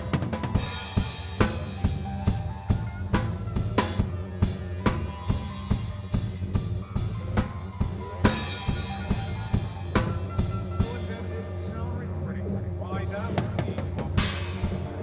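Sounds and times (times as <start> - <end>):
electric guitar: 0.0 - 11.4
bass line: 0.0 - 15.0
drum kit beat: 0.0 - 15.0.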